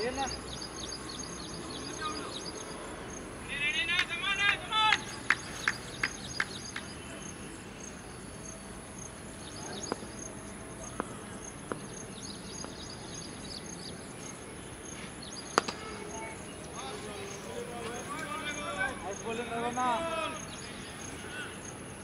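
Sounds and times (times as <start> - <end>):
insects chirring: 0.0 - 22.0
open-air ambience: 0.0 - 22.0
cricket bat striking ball: 15.5 - 16.2.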